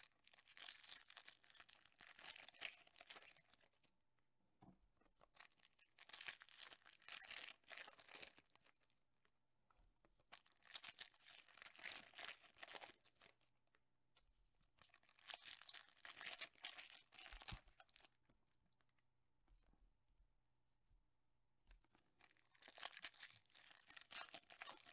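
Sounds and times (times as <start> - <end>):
foil wrappers tearing and crinkling: 22.6 - 24.9.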